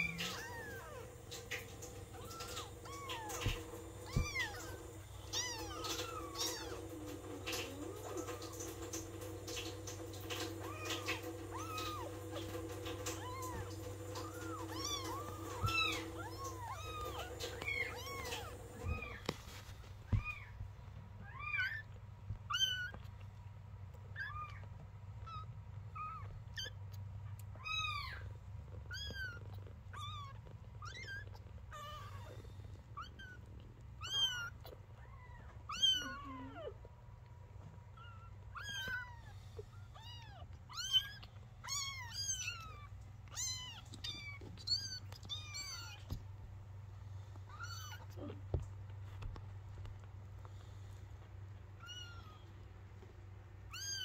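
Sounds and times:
kittens mewing: 0:00.0 - 0:19.3, 0:24.1 - 0:36.9, 0:37.9 - 0:46.2
steady low hum: 0:00.0 - 0:53.8.

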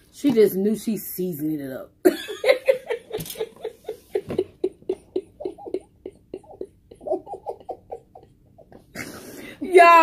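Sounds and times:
person laughing in breathy bursts: 0:02.3 - 0:09.6.

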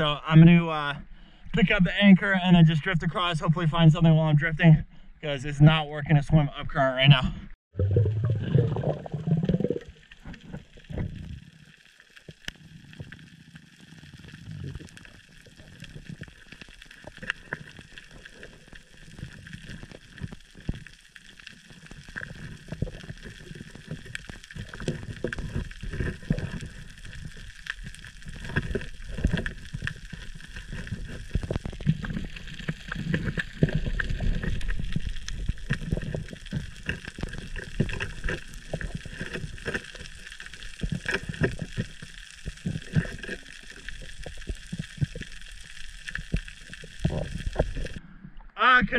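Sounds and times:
low underwater rumble: 0:07.7 - 0:48.6
underwater water rushing and gurgling: 0:07.7 - 0:48.6
small clicks and crackles: 0:09.5 - 0:48.0.

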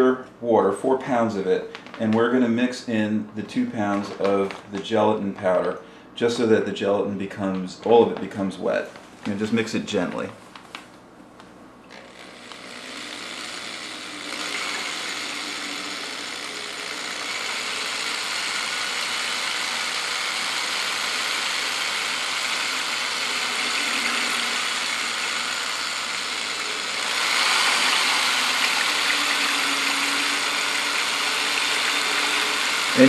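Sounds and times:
electric drill mixing water: 0:11.9 - 0:33.0.

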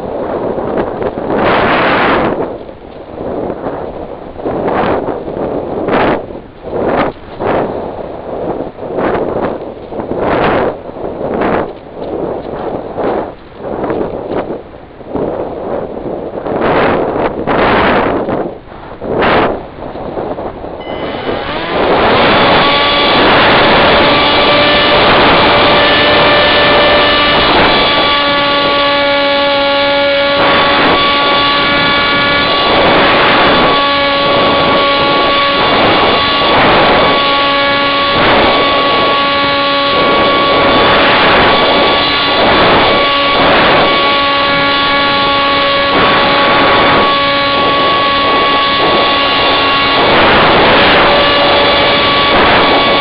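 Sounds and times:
wind rushing over microphone: 0:00.0 - 0:53.0
model plane motor whine: 0:20.3 - 0:53.0.

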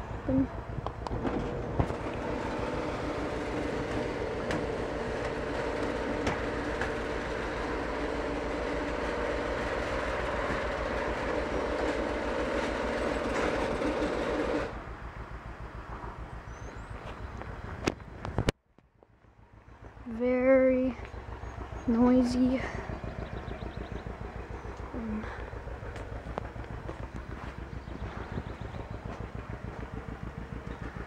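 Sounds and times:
garage door opener motor hum: 0:00.0 - 0:14.9.

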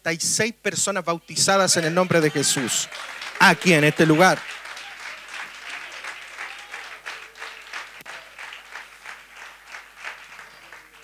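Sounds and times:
crowd applauding: 0:01.4 - 0:11.0.

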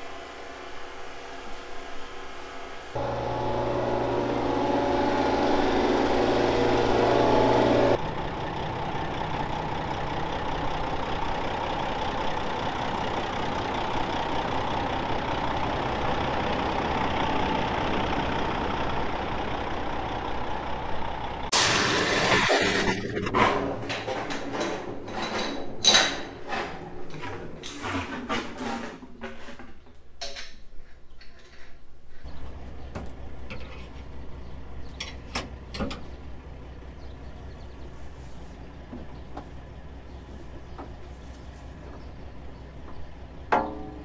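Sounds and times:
diesel truck engine idling: 0:03.0 - 0:21.5, 0:32.5 - 0:43.5.

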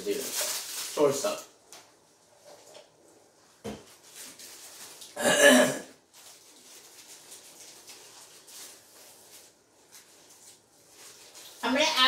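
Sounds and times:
paper food wrapper rustling: 0:00.0 - 0:01.6, 0:03.8 - 0:05.2, 0:06.0 - 0:12.0
person clearing throat: 0:05.2 - 0:06.0.

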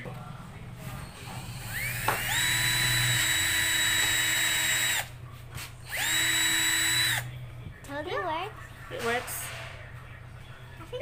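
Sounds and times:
cordless drill boring into wood: 0:01.2 - 0:05.1, 0:05.9 - 0:07.2.

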